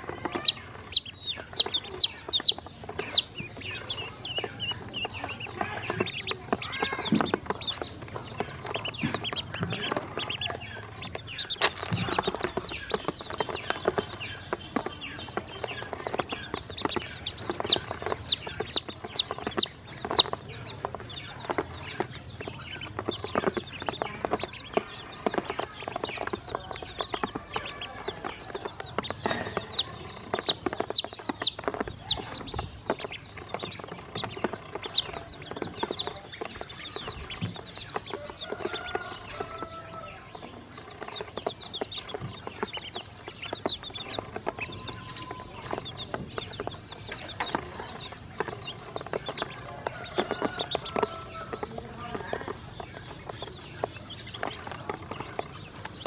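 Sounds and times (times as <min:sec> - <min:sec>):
beaks tapping plastic: 0:00.0 - 0:56.0
chicks peeping: 0:00.0 - 0:56.0.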